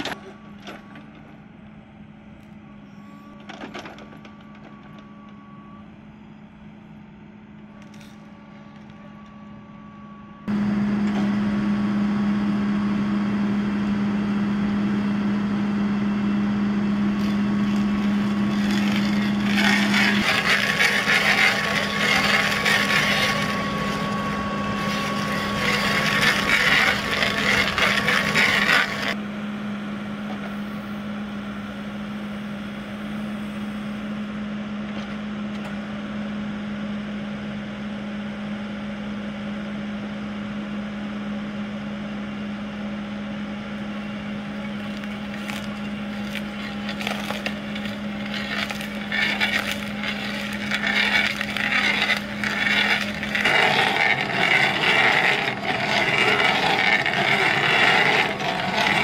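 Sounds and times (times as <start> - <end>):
backhoe engine running: 0.0 - 59.0
stump crusher cracking and grinding: 16.2 - 29.2, 44.5 - 59.0.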